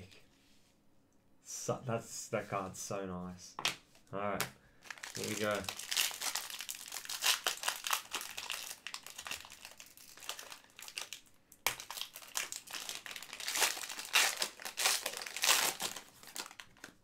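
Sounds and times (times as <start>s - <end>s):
wrapper crinkling: 4.8s - 17.0s.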